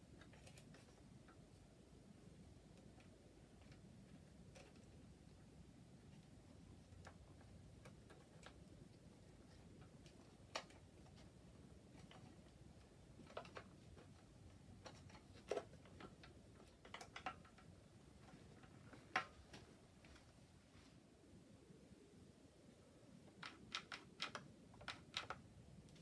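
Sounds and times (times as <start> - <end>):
quiet room hum: 0.0 - 26.0.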